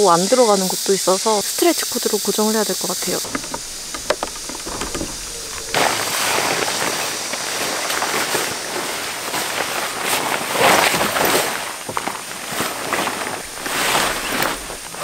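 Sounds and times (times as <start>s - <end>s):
tent fabric rustling and flapping: 3.2s - 15.0s.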